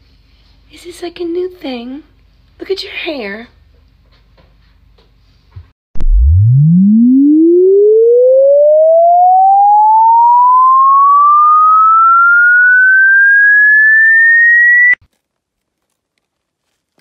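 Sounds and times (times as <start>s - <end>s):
electronic tone sweeping upward: 6.0s - 15.0s.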